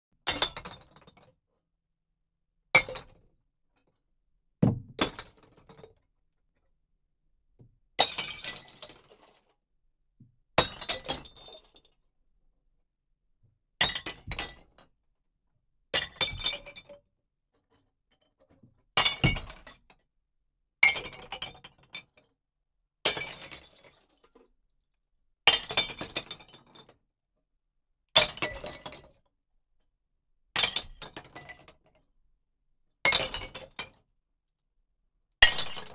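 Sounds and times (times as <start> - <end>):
glass bottles crashing: 8.0 - 9.3, 23.1 - 24.2, 35.4 - 35.9.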